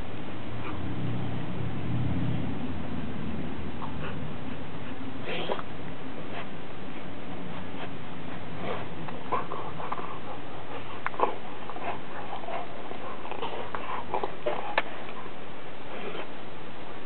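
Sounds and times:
dog chewing on bone: 7.4s - 15.3s.

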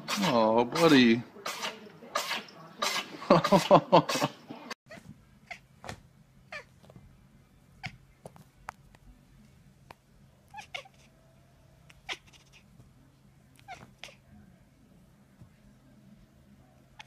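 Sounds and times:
cat meowing: 10.5s - 11.1s, 11.9s - 12.7s, 13.6s - 14.2s.

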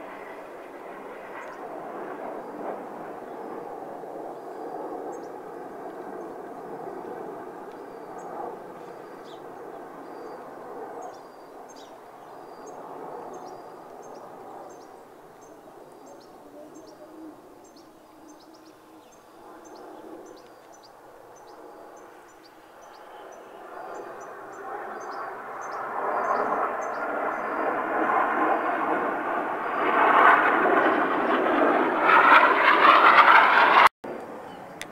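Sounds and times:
distant jet engines: 0.0s - 34.9s
small birds chirping: 6.1s - 27.7s.

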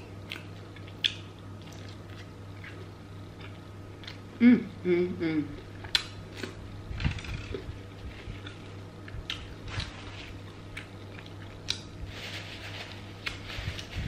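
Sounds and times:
steady low hum: 0.0s - 14.0s
paper napkin rustling: 9.7s - 10.6s, 12.0s - 14.0s.

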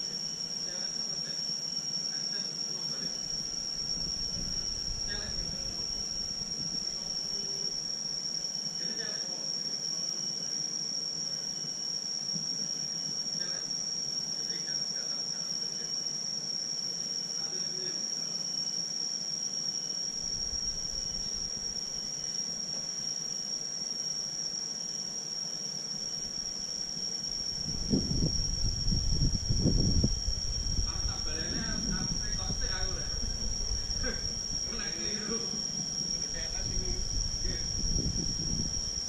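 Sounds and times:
high-pitched insect drone: 0.0s - 39.0s
wind gusts on microphone: 3.8s - 7.1s, 20.2s - 21.5s, 27.3s - 39.0s.

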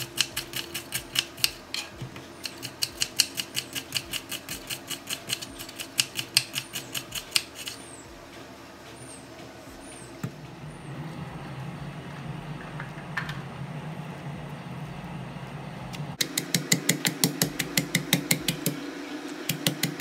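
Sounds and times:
steady low hum: 0.0s - 20.0s
stone pestle pounding in mortar: 16.2s - 18.8s.

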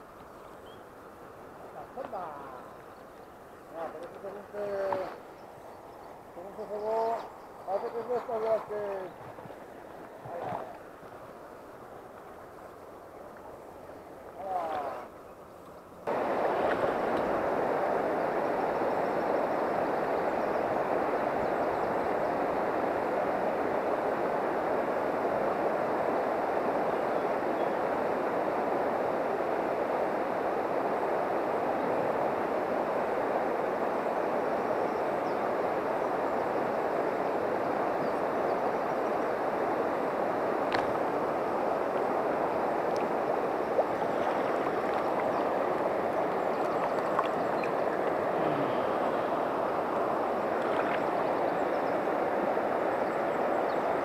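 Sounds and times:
river rushing over riffle: 16.0s - 54.0s.

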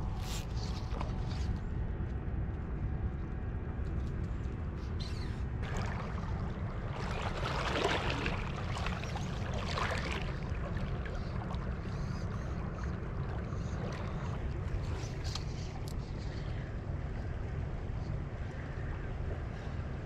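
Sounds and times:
creek water rushing: 5.6s - 15.1s
water splashing: 5.6s - 15.9s.

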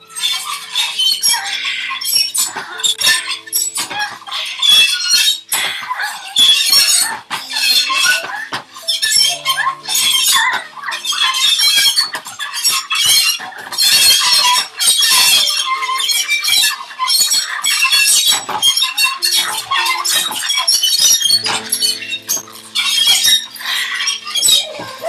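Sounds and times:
held piano notes: 0.0s - 13.3s, 19.1s - 25.0s
dry ice squealing on metal: 0.0s - 25.0s.

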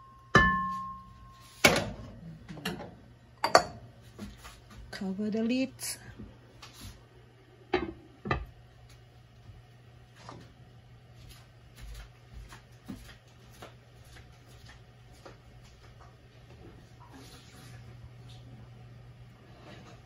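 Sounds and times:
low steady hum: 0.0s - 20.0s
glass lid knocking on wok: 0.4s - 1.0s.

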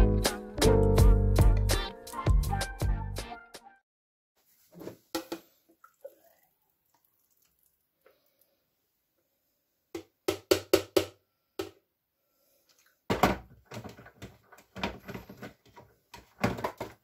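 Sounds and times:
smoothie pouring: 5.7s - 8.2s.

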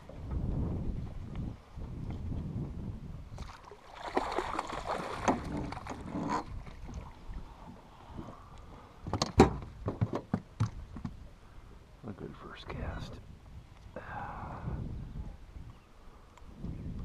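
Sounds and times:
fish thrashing in water: 3.4s - 7.2s.

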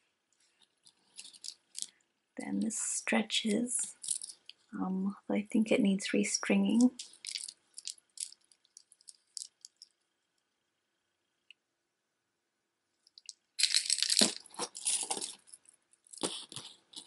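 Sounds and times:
beads clattering and rustling: 0.4s - 2.0s, 3.7s - 4.7s, 6.7s - 10.0s, 13.1s - 17.0s
wooden beads clicking: 0.6s - 2.0s, 3.9s - 4.6s, 6.9s - 10.0s, 13.0s - 17.0s.

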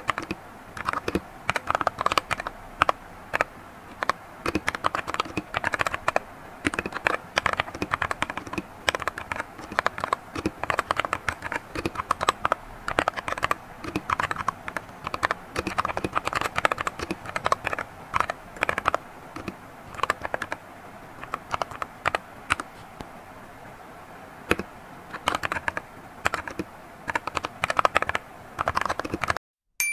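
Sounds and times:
mechanical keyboard typing: 0.0s - 20.6s, 21.2s - 22.7s, 24.5s - 29.4s.

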